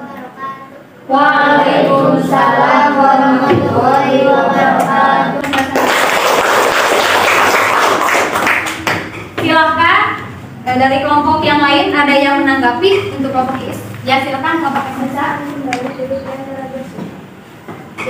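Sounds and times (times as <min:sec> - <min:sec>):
girls chanting together: 0:01.1 - 0:05.6
class applauding: 0:05.4 - 0:09.1.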